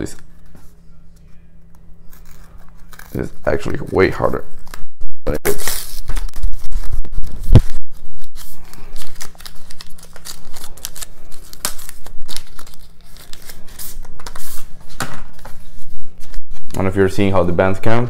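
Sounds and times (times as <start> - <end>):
paper packaging tearing: 2.0 - 4.8, 5.4 - 14.6.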